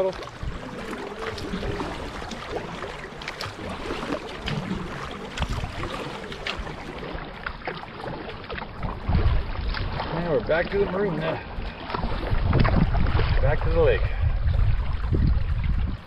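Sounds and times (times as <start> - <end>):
paddle splashing and dripping: 0.0 - 16.0.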